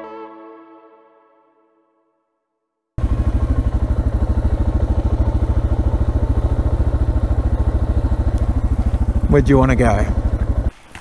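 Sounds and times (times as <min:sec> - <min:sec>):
motorcycle engine running: 0:03.0 - 0:11.0.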